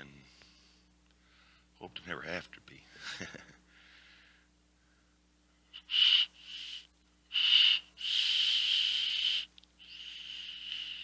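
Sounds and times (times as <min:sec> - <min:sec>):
air hissing through e-cigarette: 0:05.8 - 0:11.0.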